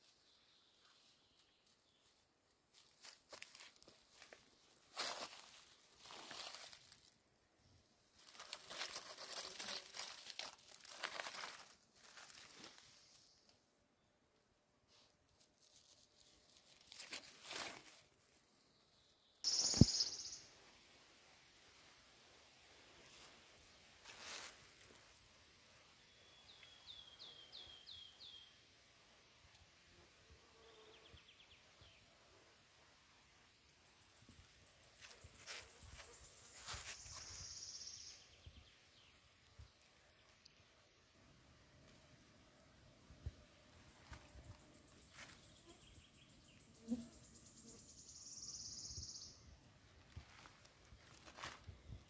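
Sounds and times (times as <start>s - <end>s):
faint songbird song: 0.0s - 14.4s, 15.7s - 52.0s
dry leaves rustling under hand: 1.6s - 7.2s, 8.1s - 13.5s, 14.9s - 18.4s, 22.9s - 25.2s, 35.0s - 37.6s, 50.0s - 51.7s
rapid bird trill: 19.5s - 20.5s.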